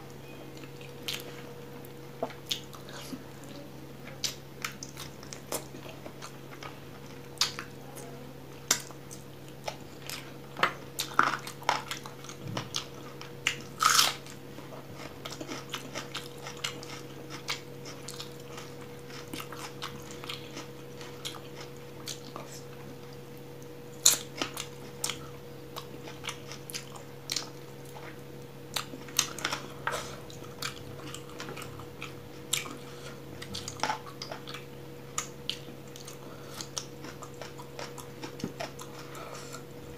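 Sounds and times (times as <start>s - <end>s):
steady low hum: 0.0s - 39.9s
wet chewing and smacking: 2.2s - 3.1s, 8.7s - 22.8s, 23.6s - 39.6s.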